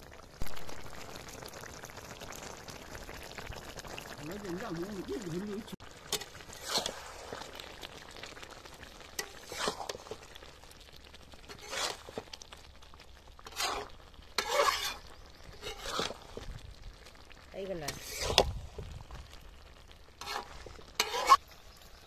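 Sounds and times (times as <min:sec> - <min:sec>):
curry sizzling: 0:00.0 - 0:22.0
metal spatula scraping a pan: 0:06.1 - 0:07.5, 0:09.2 - 0:10.2, 0:11.4 - 0:12.3, 0:13.4 - 0:16.5, 0:17.8 - 0:18.5, 0:20.2 - 0:21.6.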